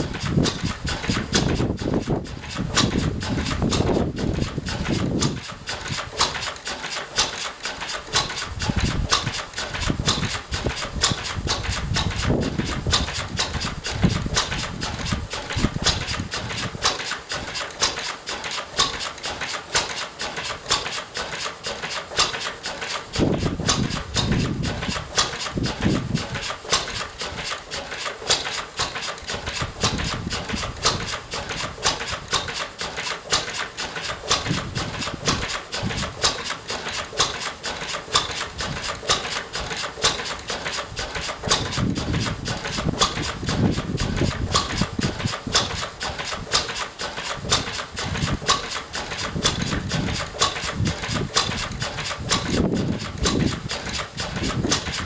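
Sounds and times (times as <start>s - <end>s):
low engine thumps: 0.0s - 6.4s, 23.2s - 27.5s, 28.2s - 55.0s
stationary engine running: 0.0s - 55.0s
valve gear clatter: 0.0s - 55.0s.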